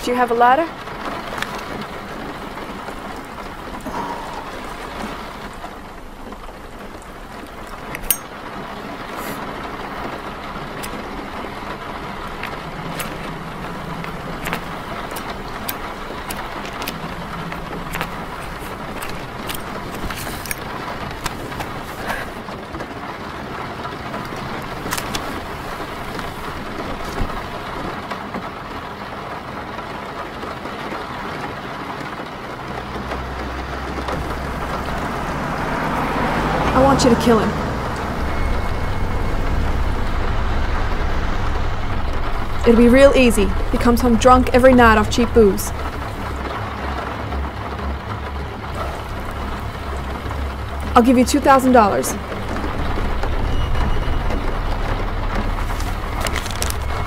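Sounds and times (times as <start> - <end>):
rain on car roof: 0.0 - 57.0
sharp raindrop hits: 0.1 - 36.8, 37.5 - 57.0
faint low rumble: 32.9 - 57.0.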